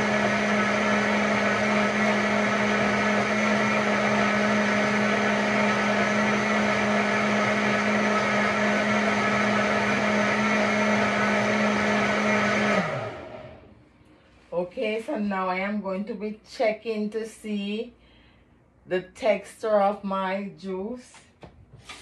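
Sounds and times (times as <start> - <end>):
blender running: 0.0 - 13.7.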